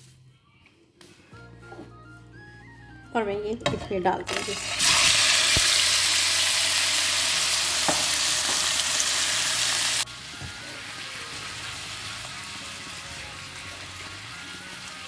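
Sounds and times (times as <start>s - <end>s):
chicken sizzling in hot oil: 4.5s - 15.0s.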